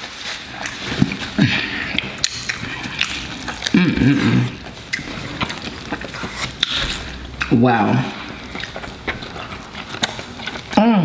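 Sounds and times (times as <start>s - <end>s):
paper wrappers crinkling: 0.0s - 7.4s
chewing: 0.0s - 11.0s.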